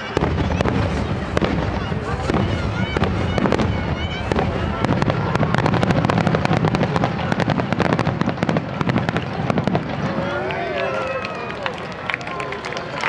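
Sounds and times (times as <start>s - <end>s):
firework shells booming: 0.0s - 10.2s.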